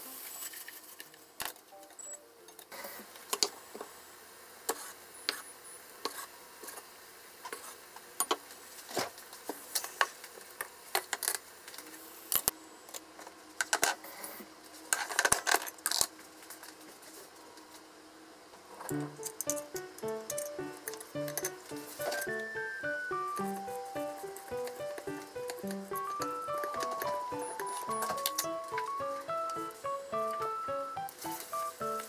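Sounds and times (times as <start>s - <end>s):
cookware clicking and clinking: 19.0s - 22.6s.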